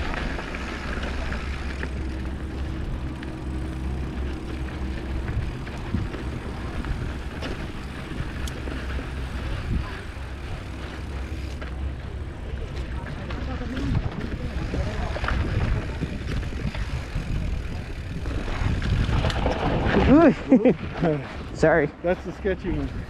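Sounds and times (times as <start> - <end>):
bike rattling clicks and knocks: 0.0 - 23.0
bike rumbling on dirt trail: 0.0 - 23.0.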